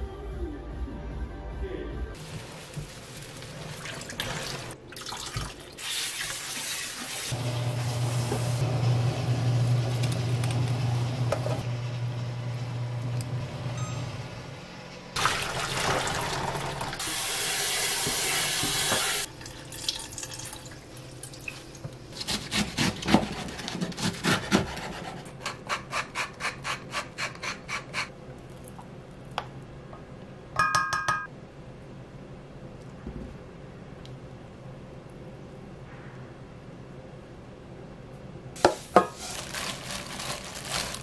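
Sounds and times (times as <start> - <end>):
water splashing into sink: 3.6 - 7.3, 15.2 - 21.5.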